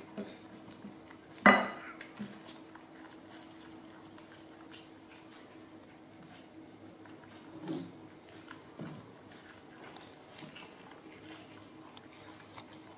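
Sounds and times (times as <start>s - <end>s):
small clicks of eating: 0.0s - 12.9s.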